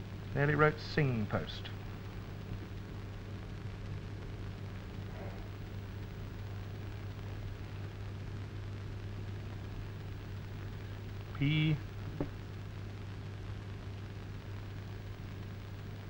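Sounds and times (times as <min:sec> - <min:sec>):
even hiss: 0:00.0 - 0:01.9, 0:10.6 - 0:12.4
low electrical hum: 0:00.0 - 0:16.0.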